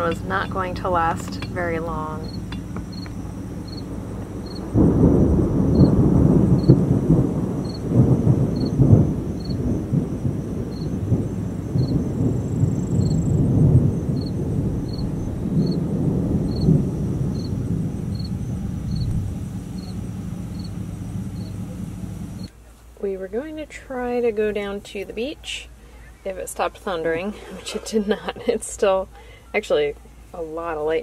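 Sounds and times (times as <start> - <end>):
insects chirping: 0.0 - 22.6
thunder rumbling: 0.0 - 24.7.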